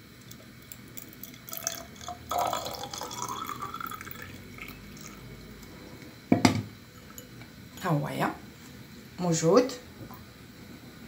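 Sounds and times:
water trickling into bottle: 0:00.3 - 0:05.2.

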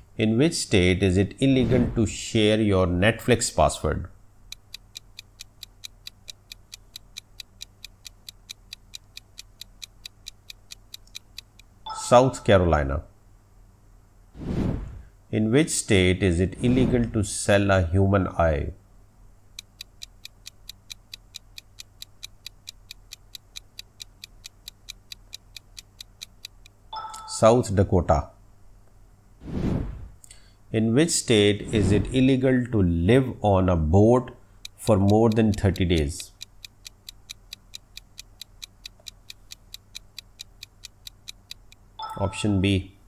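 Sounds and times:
quick clock-like ticking: 0:04.5 - 0:11.9, 0:19.5 - 0:27.3, 0:34.6 - 0:42.2.

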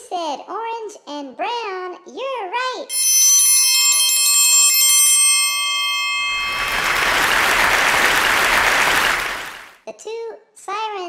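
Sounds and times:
bright bell-like chime: 0:02.9 - 0:09.6
applause: 0:06.2 - 0:09.8.

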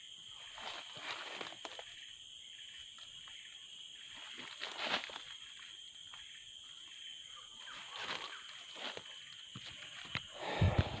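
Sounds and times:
high-pitched insect hum: 0:00.0 - 0:11.0
dry leaves rustling underfoot: 0:00.3 - 0:02.0, 0:04.1 - 0:05.5, 0:07.7 - 0:10.1.

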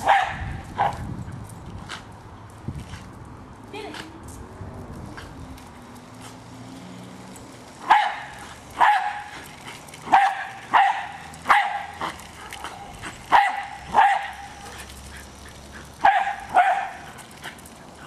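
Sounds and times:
dog barking: 0:00.0 - 0:01.0, 0:07.9 - 0:09.3, 0:10.1 - 0:12.0, 0:13.3 - 0:14.5, 0:16.0 - 0:17.0.

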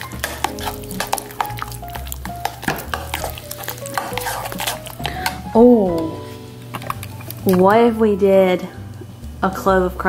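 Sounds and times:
metal spoon scraping ceramic bowl: 0:00.0 - 0:05.4
background music: 0:00.0 - 0:10.0.

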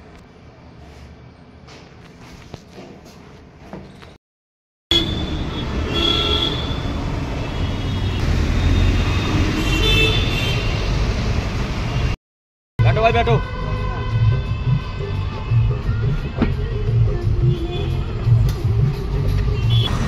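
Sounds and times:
car horns tooting: 0:04.9 - 0:08.3, 0:08.9 - 0:10.8, 0:19.6 - 0:20.0
busy road traffic: 0:04.9 - 0:12.2, 0:12.8 - 0:20.0.

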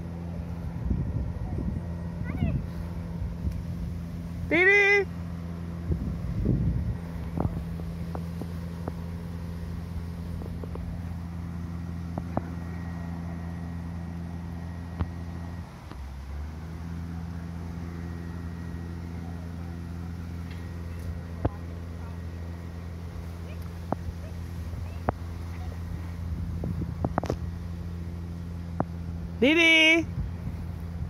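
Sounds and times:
machine humming: 0:00.0 - 0:31.0.

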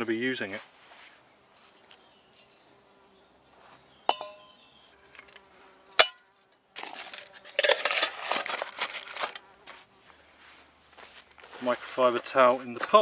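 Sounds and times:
ringing metal clink: 0:04.1 - 0:04.6
metal pot scraping and rattling: 0:06.8 - 0:09.4.

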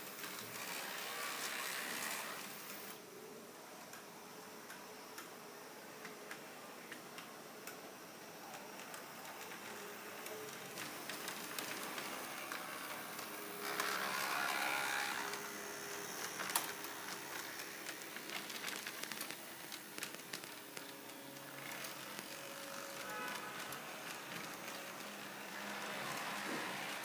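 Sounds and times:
small electric motors whirring: 0:00.2 - 0:03.0, 0:10.2 - 0:27.0
wheels clicking over rail joints: 0:08.5 - 0:27.0.

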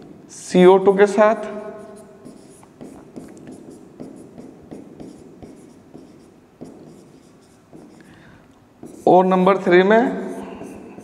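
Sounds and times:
scratchy pen strokes on board: 0:01.8 - 0:08.1, 0:08.8 - 0:09.4, 0:10.1 - 0:11.0.

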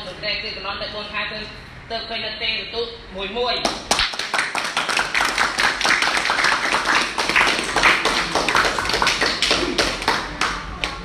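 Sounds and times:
group clapping: 0:03.6 - 0:11.0.

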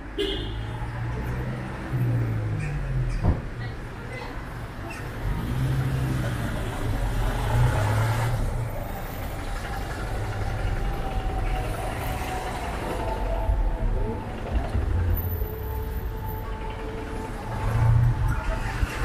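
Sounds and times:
passing cars rumble: 0:00.0 - 0:19.0
vehicle engine running: 0:05.1 - 0:19.0.

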